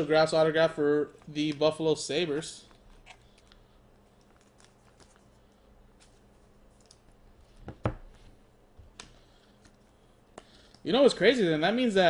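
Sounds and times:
card in plastic sleeve rustling: 1.1s - 7.6s.

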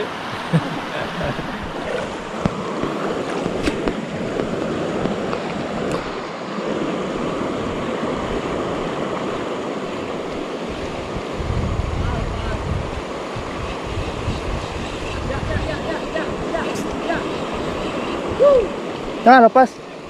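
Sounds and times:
river rushing over rocks: 0.0s - 13.5s.

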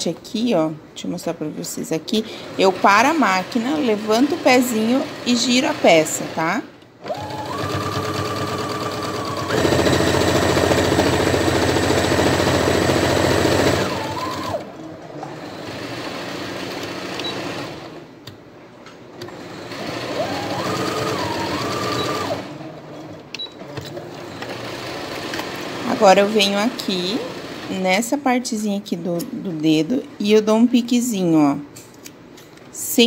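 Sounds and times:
sewing machine running: 2.3s - 18.1s, 19.2s - 23.0s, 24.0s - 27.8s.

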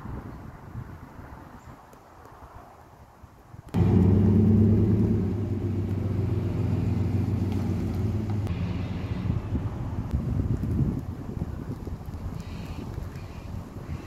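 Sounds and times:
vehicle engine humming: 3.8s - 13.8s.

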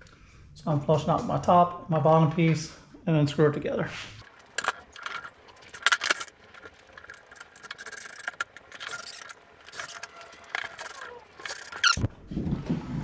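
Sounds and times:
drill scraping on wood: 4.5s - 12.1s.

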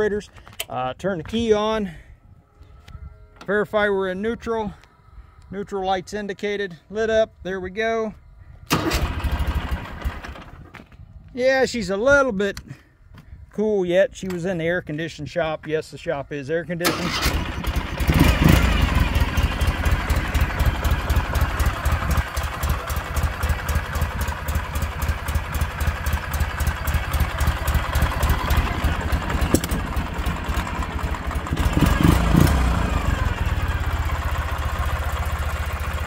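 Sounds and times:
motorcycle engine idling and revving: 8.7s - 11.0s, 17.0s - 36.0s.

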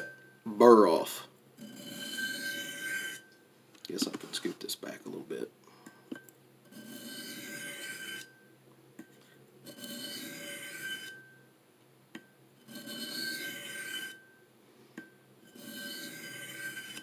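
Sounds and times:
knife scraping on sharpening stone: 1.6s - 3.3s, 6.7s - 8.4s, 9.6s - 11.4s, 12.6s - 14.3s, 15.4s - 17.0s
faint ringing tone: 7.0s - 11.6s, 12.3s - 17.0s.

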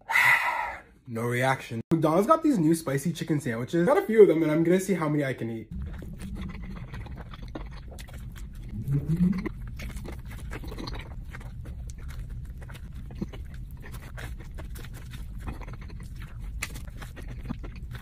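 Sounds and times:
steady low hum: 5.6s - 18.0s
biting and chewing food: 5.7s - 18.0s.

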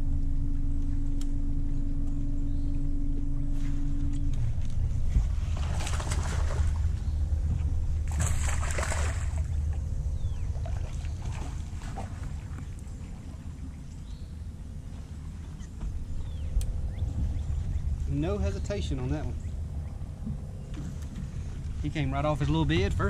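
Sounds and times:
steady low rumble: 0.0s - 23.0s
fish splashing at the surface: 5.6s - 7.0s, 8.1s - 9.6s.

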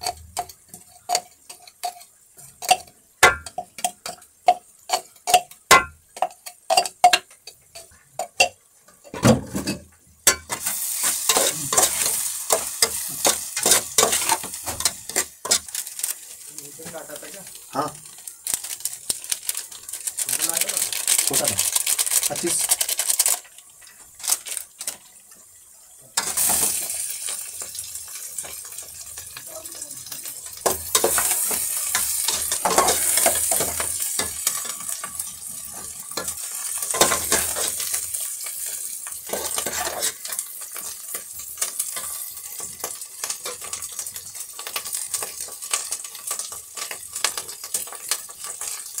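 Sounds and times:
utensil scraping metal pan: 0.0s - 15.8s, 30.6s - 38.0s, 38.6s - 40.9s
meat sizzling in a pan: 0.0s - 49.0s.

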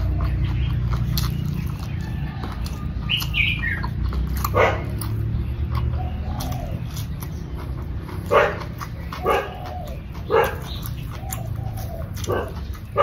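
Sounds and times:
dog barking: 4.4s - 5.1s, 8.1s - 11.0s, 11.7s - 13.0s
dog whining: 8.2s - 13.0s.

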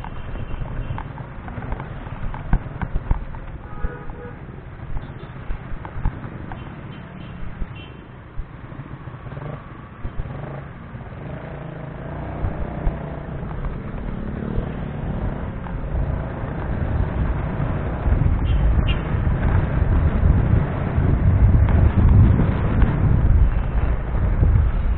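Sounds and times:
road noise: 0.0s - 24.9s
motorcycle engine: 8.7s - 24.9s
wind buffeting on microphone: 14.6s - 24.9s.

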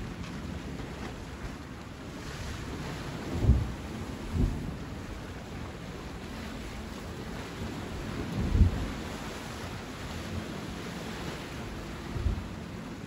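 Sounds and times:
sea waves washing on shore: 0.0s - 13.0s.

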